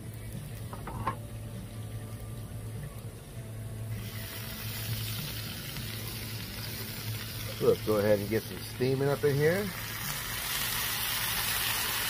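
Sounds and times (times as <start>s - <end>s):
low hum: 0.0s - 7.8s
beans sizzling on a griddle: 0.0s - 12.0s.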